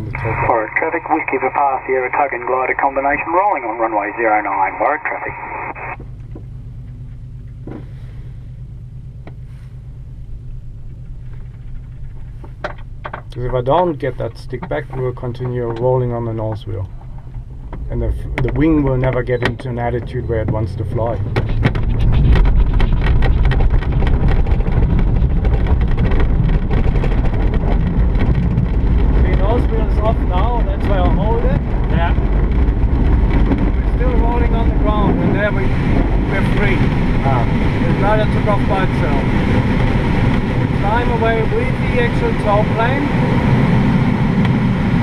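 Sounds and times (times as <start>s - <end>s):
glider rolling on grass rumble: 9.2s - 45.0s
airframe rattling and knocking: 21.2s - 29.2s.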